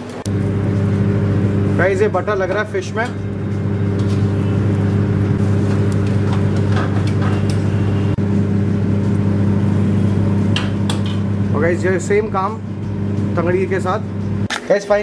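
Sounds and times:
kitchen machinery humming: 0.0s - 15.0s.

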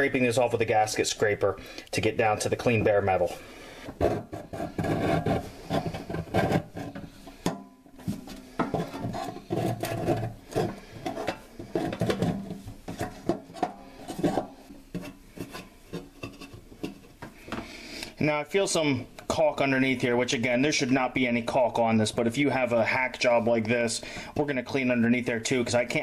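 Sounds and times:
metal scraper scraping metal: 4.0s - 7.5s, 8.6s - 16.6s.

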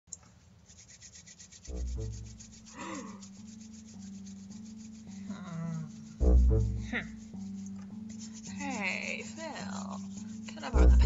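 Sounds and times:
pencil scratching on paper: 0.6s - 11.0s
low rumble: 1.7s - 2.4s, 6.2s - 7.2s, 10.8s - 11.0s
steady low hum: 1.7s - 11.0s.

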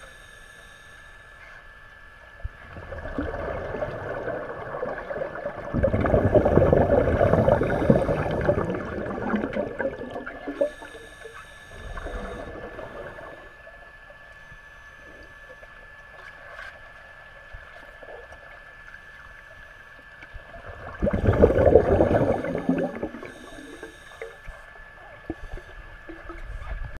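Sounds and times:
underwater bubbling: 2.0s - 27.0s
diver breathing: 6.0s - 9.2s, 10.5s - 13.6s, 21.2s - 24.7s.

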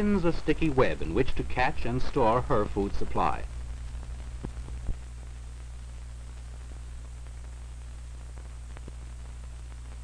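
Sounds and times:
narration: 0.0s - 3.6s
film soundtrack hiss and hum: 0.0s - 10.0s.

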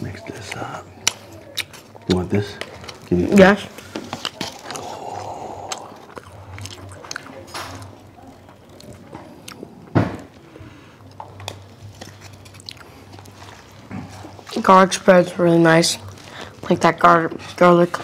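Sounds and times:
wet squishing of pasta: 0.4s - 9.7s, 10.3s - 15.0s
close-up chewing: 0.4s - 14.7s.

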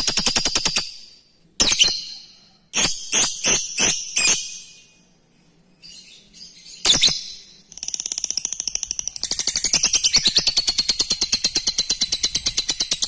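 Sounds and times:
lovebird chirps: 0.0s - 5.1s, 5.8s - 13.0s
lovebird chattering trill: 6.8s - 13.0s.

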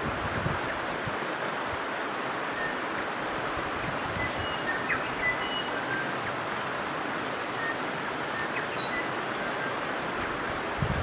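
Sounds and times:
creek water flowing over stones: 0.0s - 11.0s
high bird chirps: 4.0s - 6.3s.

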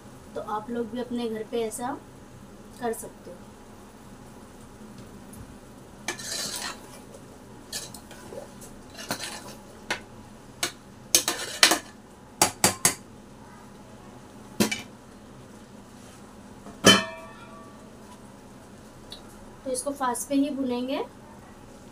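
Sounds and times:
metal spoon scraping pot: 6.1s - 7.0s, 8.9s - 9.6s.

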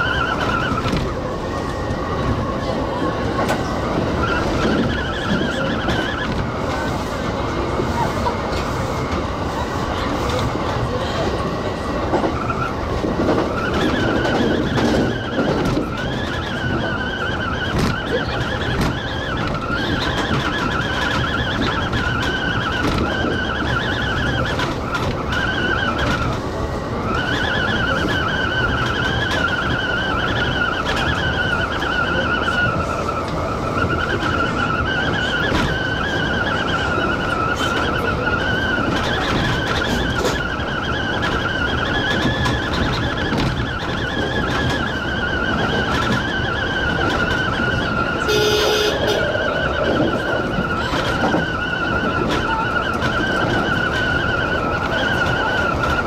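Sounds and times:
train wheels rumbling on track: 0.0s - 56.0s
wheel flange squeal: 0.0s - 56.0s.

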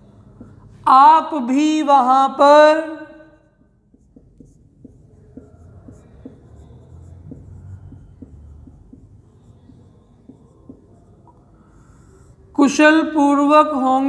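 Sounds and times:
marker writing on whiteboard: 0.0s - 14.0s.

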